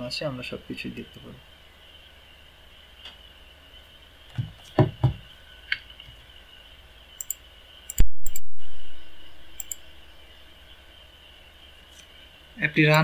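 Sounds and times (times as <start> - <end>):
dull thumps: 4.3 - 5.3
computer mouse clicks: 7.2 - 8.5, 9.6 - 9.8.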